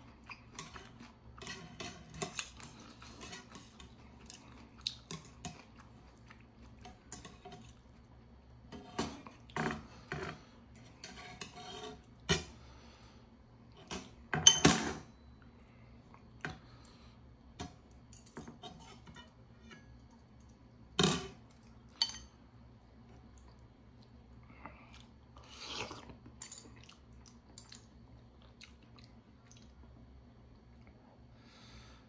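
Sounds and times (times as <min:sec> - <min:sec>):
chewing: 0:02.3 - 0:08.0, 0:23.2 - 0:29.8
person slurping noodles: 0:25.4 - 0:26.1.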